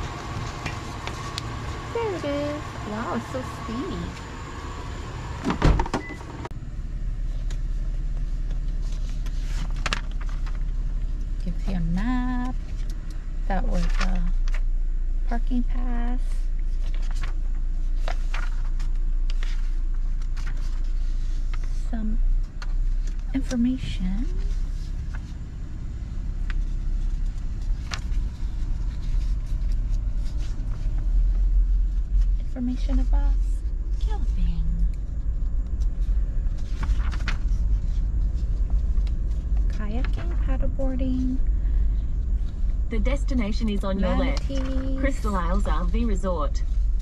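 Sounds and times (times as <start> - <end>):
car engine idling: 0.0 - 47.0
paper packet rustling: 8.5 - 11.1, 13.7 - 14.6, 16.6 - 21.8, 36.0 - 40.4.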